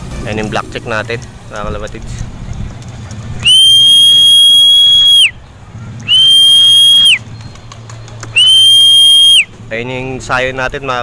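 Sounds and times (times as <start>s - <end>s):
whistle blasts: 3.4s - 5.4s, 6.0s - 7.2s, 8.3s - 9.5s.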